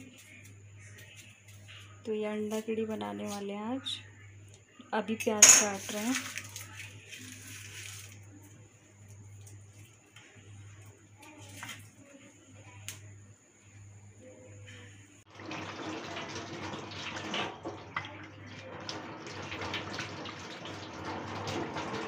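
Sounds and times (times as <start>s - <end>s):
tap water splashing into sink: 15.3s - 22.0s.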